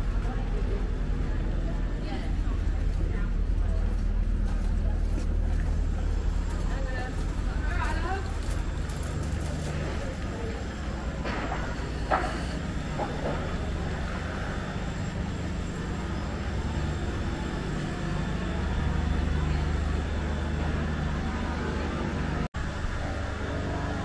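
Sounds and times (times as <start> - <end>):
street rumble and hum: 0.0 - 24.0.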